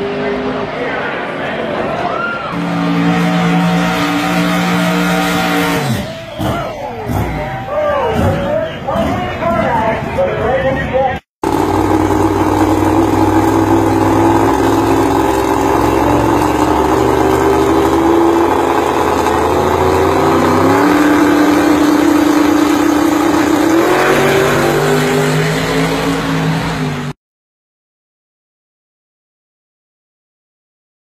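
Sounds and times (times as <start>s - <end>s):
loud car engine running: 2.6s - 9.9s, 11.4s - 27.2s.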